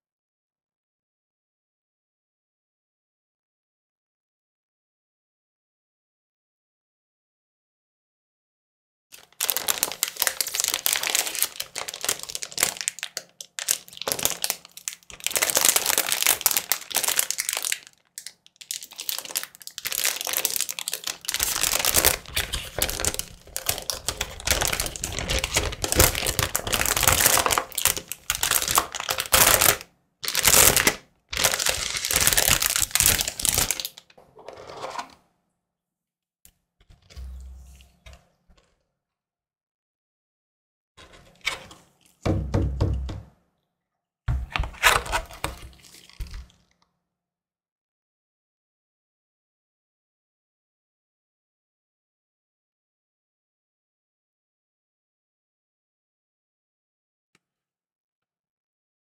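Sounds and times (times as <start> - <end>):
plastic bag crinkling: 9.2 - 34.0, 44.7 - 46.5.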